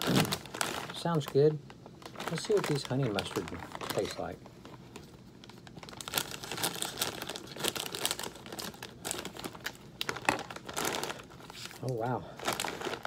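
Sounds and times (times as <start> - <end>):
plastic snack bag rustling: 0.0 - 13.0.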